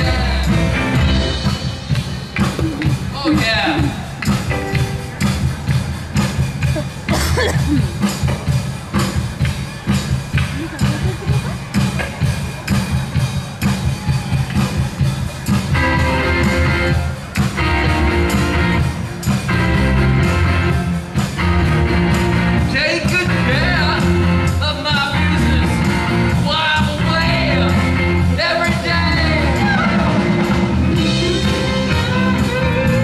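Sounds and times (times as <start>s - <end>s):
man singing lead vocal: 0.0s - 1.2s, 22.7s - 33.0s
bass guitar: 0.0s - 33.0s
drums: 0.0s - 33.0s
electric guitar: 27.0s - 33.0s.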